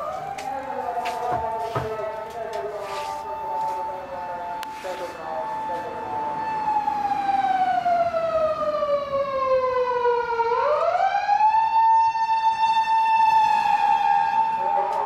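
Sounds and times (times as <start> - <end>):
siren wailing: 0.0 - 15.0.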